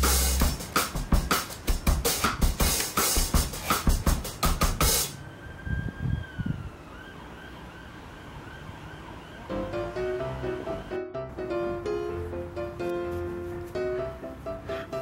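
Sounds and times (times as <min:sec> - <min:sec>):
music with drum beat: 0:00.0 - 0:05.2.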